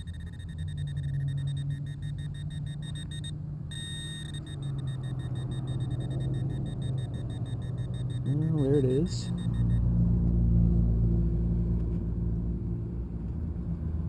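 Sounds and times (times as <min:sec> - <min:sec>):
metal detector pinpointer beeping: 0:00.0 - 0:09.9
steady low hum: 0:00.0 - 0:14.0.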